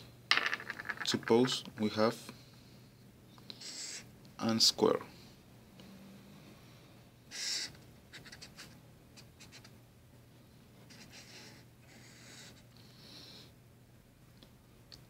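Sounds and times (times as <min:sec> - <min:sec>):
marker pen drawing on paper: 0:03.6 - 0:04.1, 0:07.3 - 0:09.8, 0:10.8 - 0:12.6.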